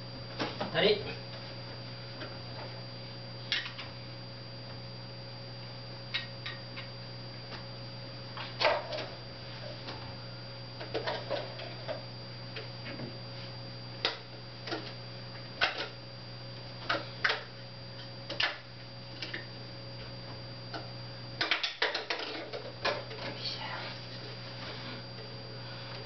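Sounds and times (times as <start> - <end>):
steady electrical hum: 0.0 - 26.0.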